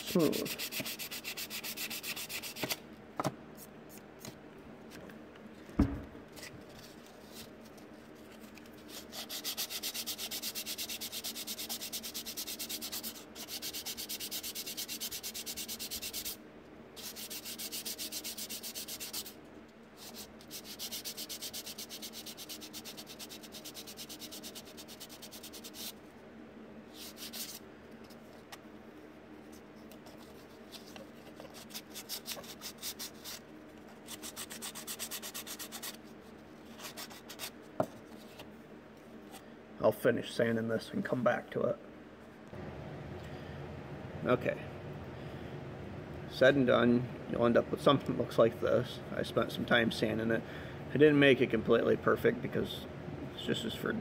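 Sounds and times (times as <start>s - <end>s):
faint steady hum: 0.0s - 54.0s
sandpaper rubbing back and forth: 0.1s - 2.8s, 8.8s - 16.4s, 17.0s - 19.4s, 20.0s - 26.0s, 26.9s - 27.6s, 31.5s - 33.4s, 34.0s - 36.0s, 36.7s - 37.5s.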